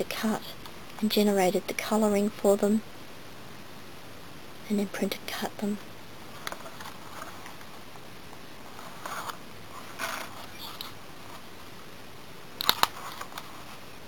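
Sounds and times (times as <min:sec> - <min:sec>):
cardstock pages rustling: 0:08.7 - 0:11.5, 0:12.6 - 0:13.8.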